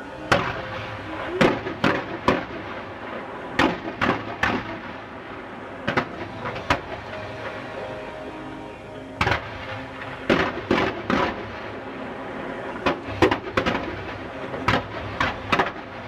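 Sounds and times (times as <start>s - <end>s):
fireworks bangs: 0.3s - 5.2s, 5.8s - 7.2s.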